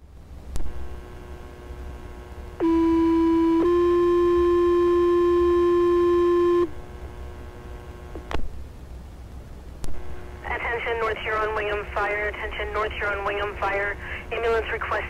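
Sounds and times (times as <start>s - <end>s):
radio hiss and hum: 0.0s - 8.6s, 9.8s - 15.0s
two-tone paging tones: 2.6s - 6.7s.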